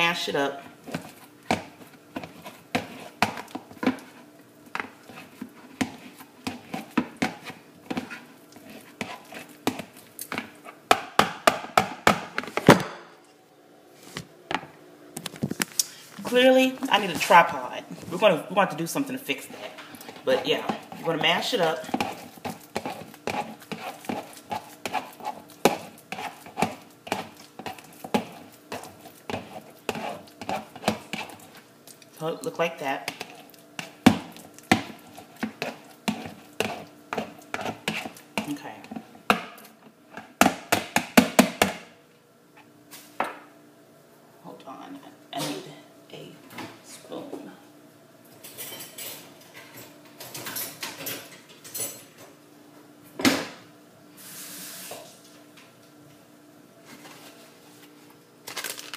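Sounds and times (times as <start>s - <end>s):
rustling and scraping of handled objects: 0.7s - 10.9s, 12.4s - 14.3s, 15.2s - 32.2s, 33.1s - 39.2s, 56.8s - 58.9s
potato masher knocking on plastic bowl: 40.4s - 41.8s.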